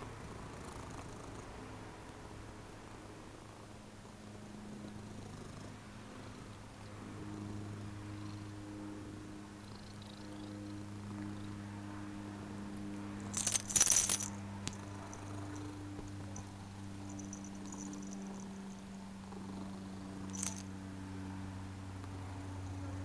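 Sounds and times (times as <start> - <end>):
cat purring: 0.2 - 1.6, 14.6 - 18.5
metal collar tag jingling: 13.2 - 18.8, 20.3 - 20.7.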